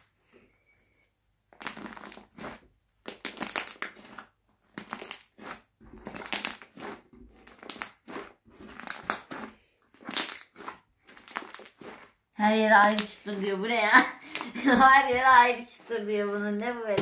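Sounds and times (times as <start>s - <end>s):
slime crackling and popping: 1.5s - 13.5s, 14.2s - 14.6s.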